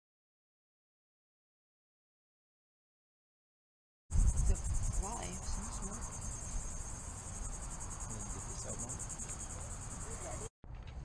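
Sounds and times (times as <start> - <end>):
insects trilling: 4.1 - 10.5.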